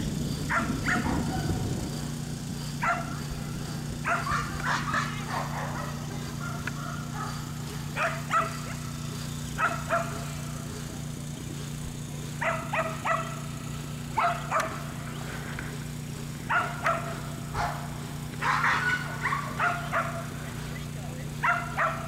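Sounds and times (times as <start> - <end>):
steady low hum: 0.0 - 22.0
dog barking: 0.5 - 1.7, 2.8 - 3.3, 4.0 - 9.0, 9.6 - 10.8, 12.3 - 13.5, 14.1 - 14.9, 16.5 - 22.0.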